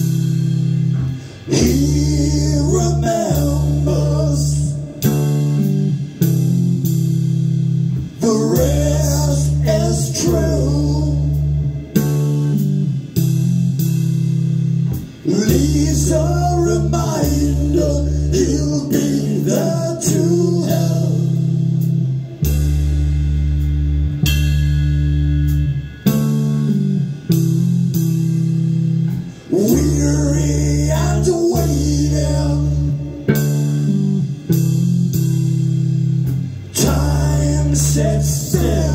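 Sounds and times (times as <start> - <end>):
heavy electric bass notes: 0.0 - 38.9
rock band playing: 0.0 - 38.9
person singing: 1.4 - 5.2, 8.2 - 11.5, 15.2 - 21.6, 29.5 - 33.4, 36.7 - 38.9.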